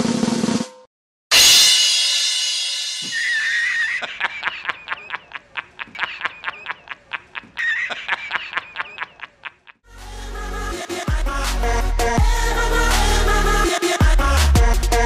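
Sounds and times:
cymbal crash: 1.3s - 3.2s
man cackling laugh: 3.0s - 9.8s.

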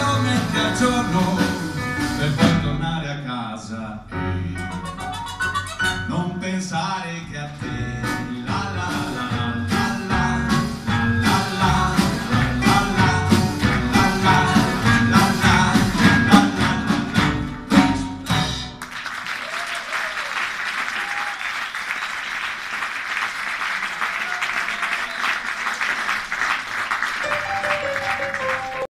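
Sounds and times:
live band playing: 0.0s - 3.1s, 4.2s - 19.0s, 27.2s - 28.9s
audience applauding: 11.3s - 17.4s, 18.7s - 28.9s.

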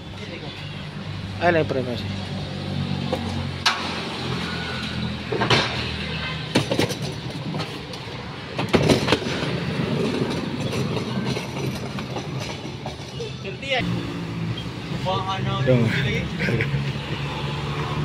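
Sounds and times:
equipment knocking and clattering: 6.5s - 7.8s, 8.5s - 13.2s.

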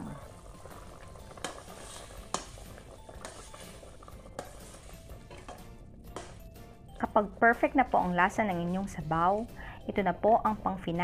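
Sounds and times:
metal ladle knocking pot: 1.3s - 7.0s.

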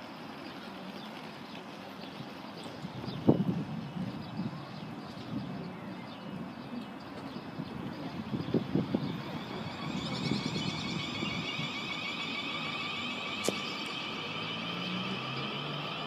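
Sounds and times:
electric train motor whine: 7.4s - 16.0s.

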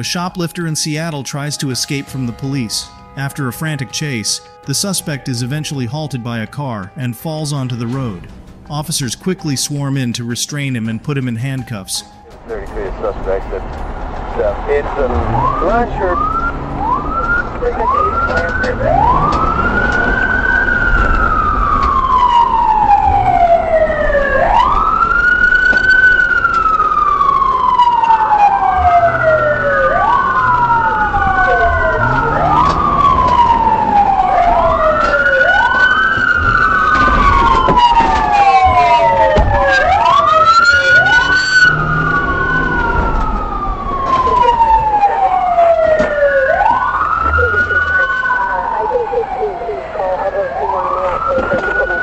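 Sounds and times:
police sirens wailing: 0.0s - 52.0s
low rumble: 12.2s - 49.8s.

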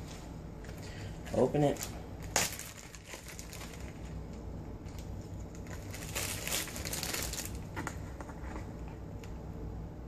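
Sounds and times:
steady low hum: 0.0s - 10.0s
plastic bag crinkling: 1.3s - 8.0s.

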